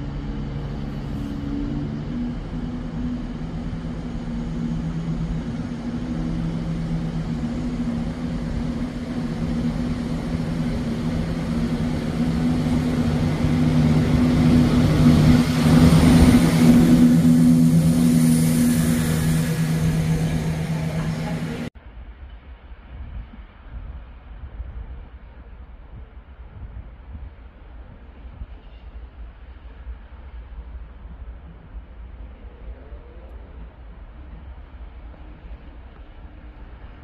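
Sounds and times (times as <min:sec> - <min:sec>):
diesel train engine: 0:00.0 - 0:21.8.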